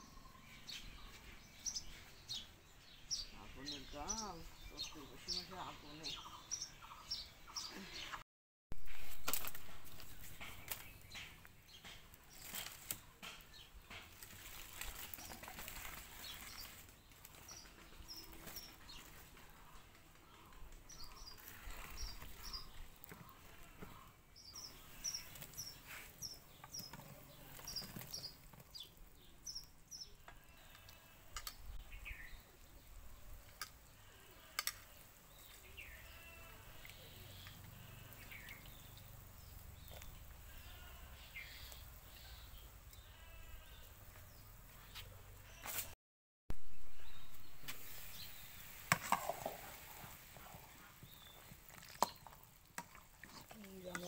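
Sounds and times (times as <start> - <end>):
birds chirping: 0.0 - 8.2, 8.8 - 45.7, 46.7 - 54.0
sticks snapping in wood fire: 9.2 - 16.0, 34.6 - 34.9.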